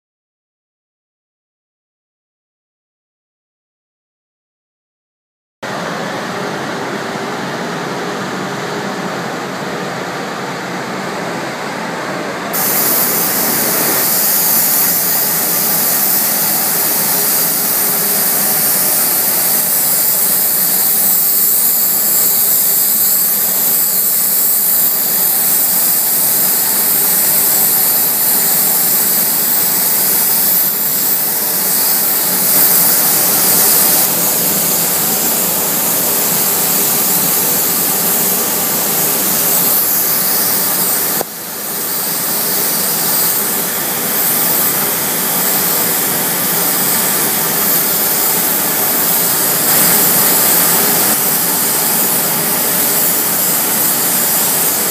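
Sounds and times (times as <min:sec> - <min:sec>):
steady mechanical hum: 0:05.6 - 0:54.9
sharp loud hiss: 0:12.5 - 0:54.9
spray gun hissing: 0:12.5 - 0:54.9.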